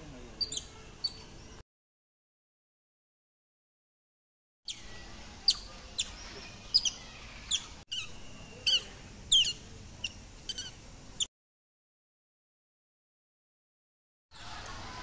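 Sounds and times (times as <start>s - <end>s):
otters chirping: 0.4s - 1.6s, 4.7s - 11.3s.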